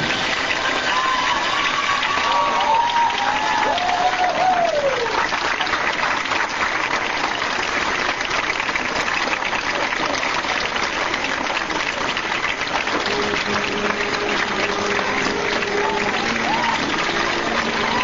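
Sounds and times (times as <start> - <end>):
audience applauding: 0.0 - 18.0
held musical note: 13.1 - 18.0.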